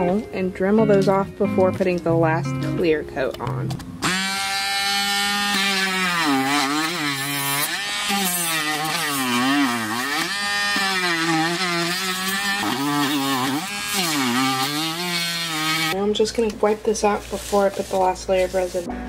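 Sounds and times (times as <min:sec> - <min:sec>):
rotary tool grinding resin: 0:04.0 - 0:16.0.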